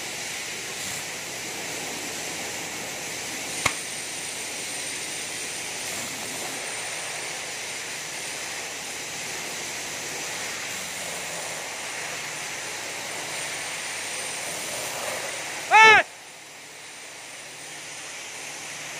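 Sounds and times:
air-powered paint mixer hissing: 0.0 - 18.9.

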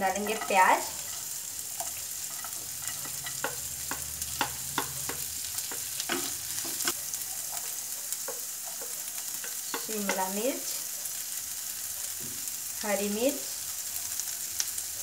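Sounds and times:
onions sizzling in a pan: 0.0 - 15.0
wooden spatula scraping a pan: 0.1 - 7.7.

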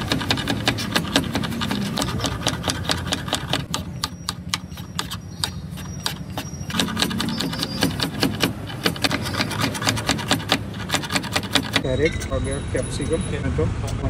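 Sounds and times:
knife chopping on wooden board: 0.0 - 11.9.

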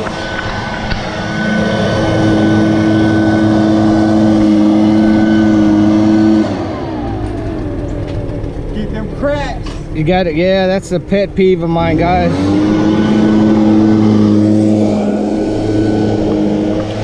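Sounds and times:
leaf blower running: 0.0 - 10.5, 11.6 - 17.0.

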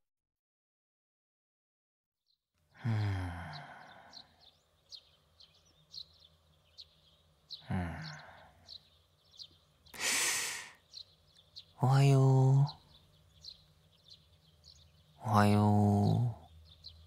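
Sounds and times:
small birds chirping: 2.3 - 17.0
low voiced sighs: 2.8 - 4.5, 7.6 - 8.7, 10.0 - 10.8.

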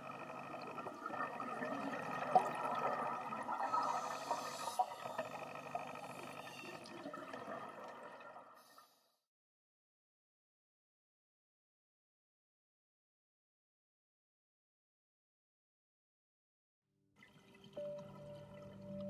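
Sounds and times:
underwater bubbling and gurgling: 0.0 - 8.8.

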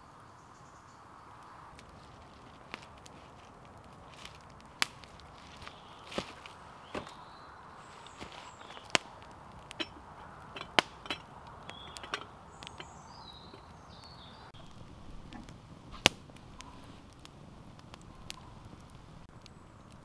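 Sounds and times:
bird chirping: 0.0 - 1.7, 5.3 - 15.5
campfire wood cracking: 1.3 - 20.0.

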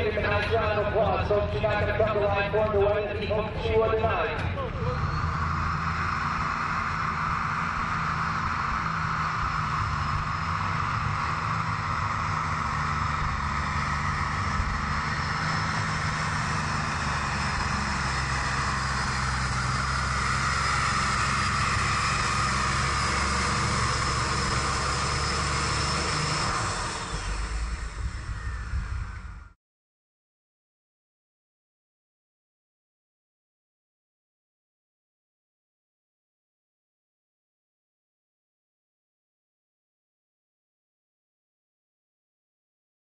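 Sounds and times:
tractor engine running flat out: 0.0 - 29.6.

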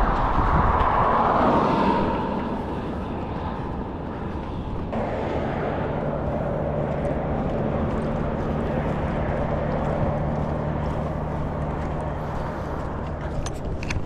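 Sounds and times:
traffic hum: 0.0 - 14.0
vehicle passing: 0.0 - 14.0.

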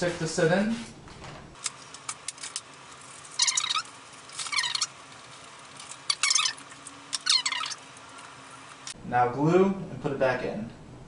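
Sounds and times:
knife blade squeaking through foam: 3.3 - 5.0, 5.8 - 8.7.

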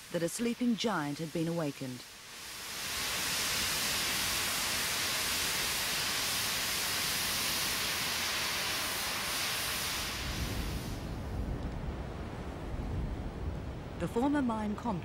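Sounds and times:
steam hissing from safety valves: 0.0 - 11.1.

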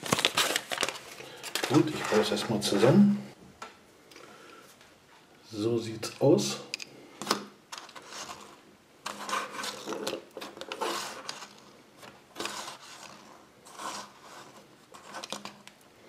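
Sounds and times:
plastic toy scraping on tabletop: 12.4 - 15.3.

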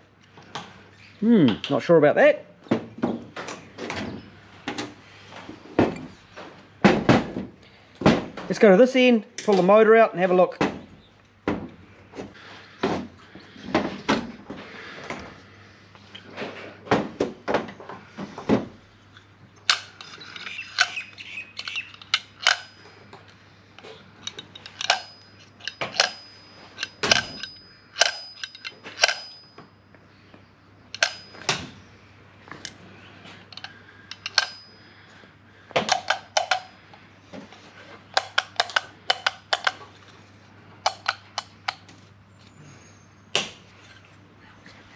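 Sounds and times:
hand tools clicking and clinking: 19.6 - 29.7, 30.9 - 31.6, 33.4 - 35.2, 35.8 - 37.0, 37.8 - 40.2, 40.8 - 41.9.

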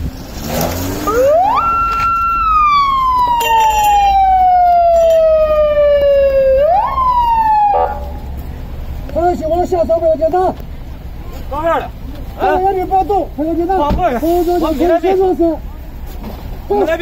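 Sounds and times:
police siren wailing: 1.0 - 8.3.

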